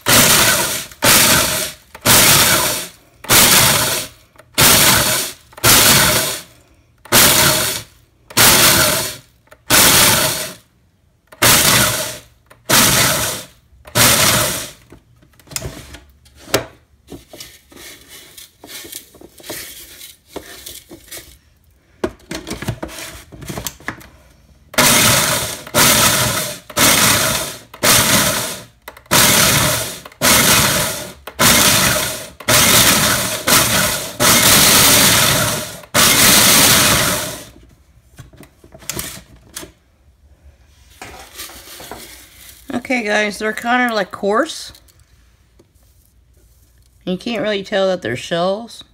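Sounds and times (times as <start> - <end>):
food processor crushing eggshells: 0.0 - 10.7, 11.3 - 14.9, 24.7 - 37.6.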